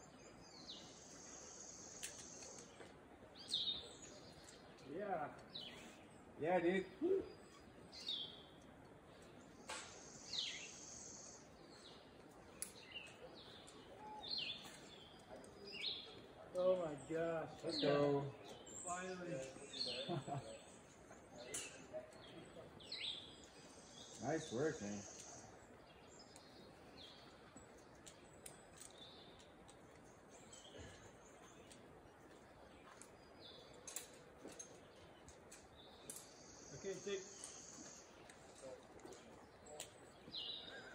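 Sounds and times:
birds chirping faintly: 0:00.0 - 0:40.9
faint ticks: 0:01.0 - 0:05.5.

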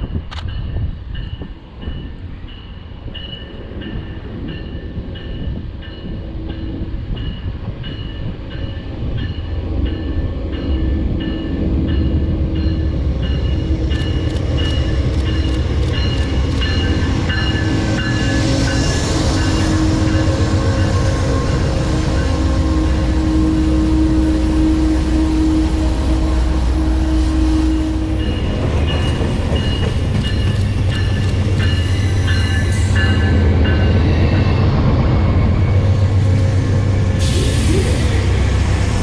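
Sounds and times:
train wheels clicking on rails: 0:00.0 - 0:22.2, 0:28.1 - 0:35.1
diesel locomotive rumble: 0:03.7 - 0:39.0.

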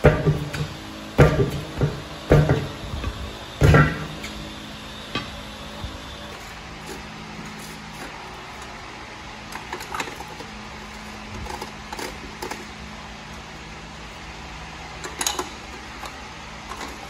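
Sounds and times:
shop machinery hum: 0:00.0 - 0:17.0.

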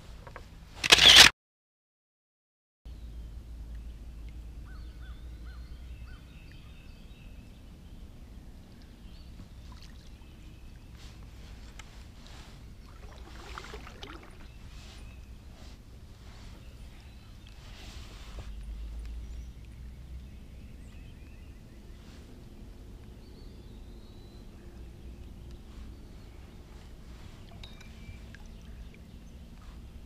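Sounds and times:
steady low rumble: 0:14.3 - 0:30.0.

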